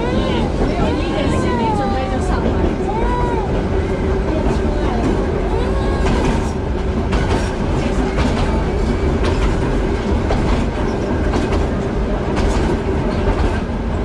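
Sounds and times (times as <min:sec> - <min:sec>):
tram rumbling along track: 0:00.0 - 0:14.0
wheels clacking over rail joints: 0:06.0 - 0:13.7.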